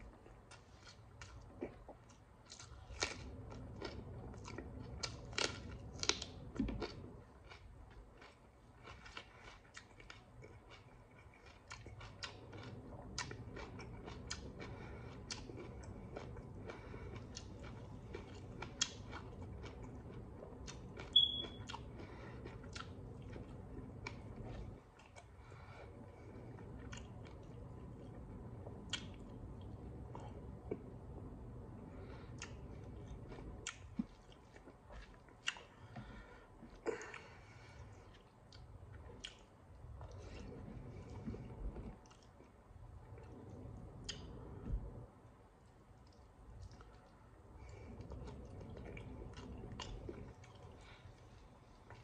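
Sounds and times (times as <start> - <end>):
person chewing food: 0.0 - 45.0, 45.8 - 52.0
steady low hum: 0.0 - 52.0.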